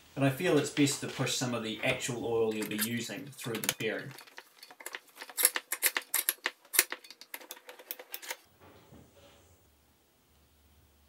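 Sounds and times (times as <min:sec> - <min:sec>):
oil can pump clicking: 0:02.5 - 0:08.4
faint low hum: 0:08.3 - 0:11.0.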